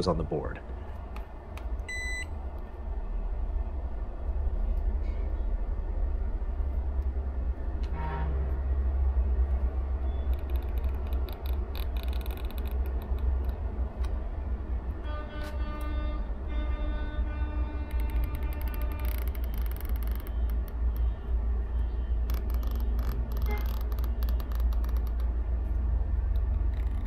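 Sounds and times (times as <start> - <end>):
steady low hum: 0.0 - 27.0
high electronic beep: 1.9 - 2.3
faint clicks: 21.8 - 27.0.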